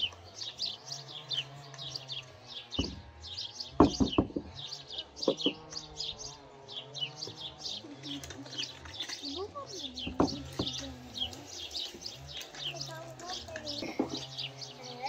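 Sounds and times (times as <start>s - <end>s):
small birds chirping: 0.0s - 15.0s
knocks: 2.8s - 3.0s, 3.8s - 4.5s, 10.0s - 10.8s.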